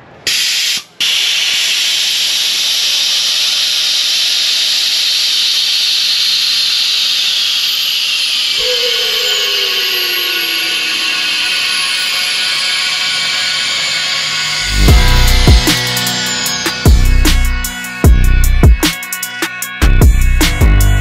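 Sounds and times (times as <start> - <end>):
falling whistling tone: 3.0 - 19.7.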